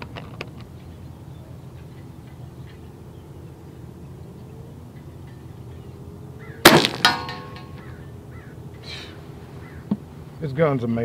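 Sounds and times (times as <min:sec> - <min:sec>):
air pistol shot: 0:06.7 - 0:07.3
ball clanging on steel target: 0:06.7 - 0:08.0.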